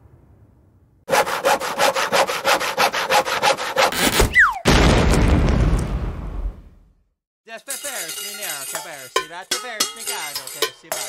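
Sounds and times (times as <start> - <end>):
handsaw rasping through wood: 1.1 - 4.2
falling whistle: 4.3 - 4.7
heavy crash: 4.7 - 6.7
explosion rumble: 4.7 - 6.9.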